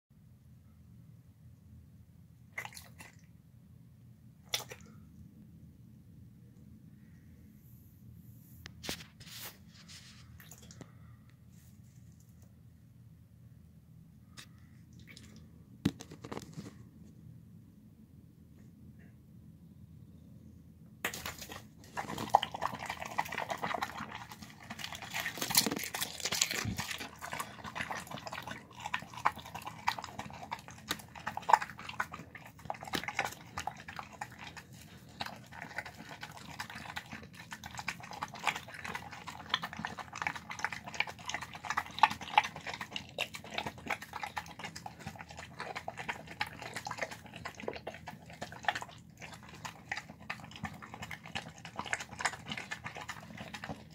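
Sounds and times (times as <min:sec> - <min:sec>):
dog eating from plastic bowl: 0:02.6 - 0:03.3, 0:08.8 - 0:10.9, 0:15.0 - 0:16.8, 0:21.0 - 0:53.9.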